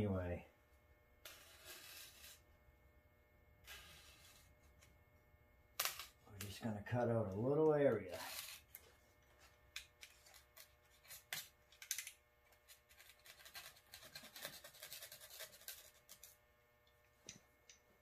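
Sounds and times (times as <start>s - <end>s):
knife scraping foam: 1.2s - 2.5s, 3.6s - 4.5s, 13.0s - 16.3s.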